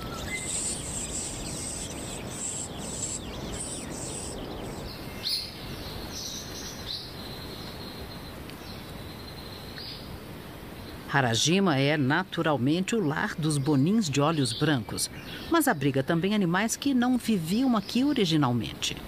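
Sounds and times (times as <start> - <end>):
high thin bird chirps: 0.0 - 5.6
steady forest hiss: 0.0 - 19.0.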